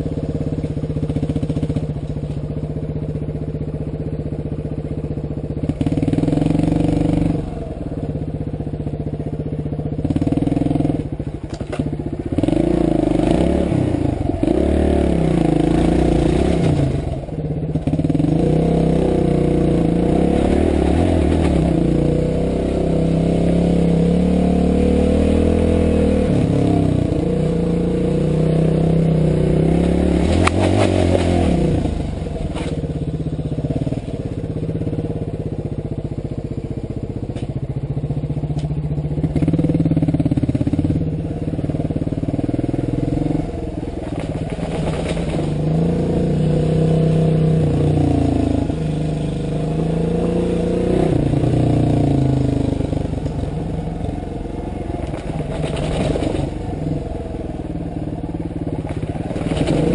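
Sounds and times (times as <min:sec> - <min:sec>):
motorcycle engine revving: 0:00.0 - 0:59.9
sharp knocks and rattles: 0:44.0 - 0:45.6, 0:55.0 - 0:56.6.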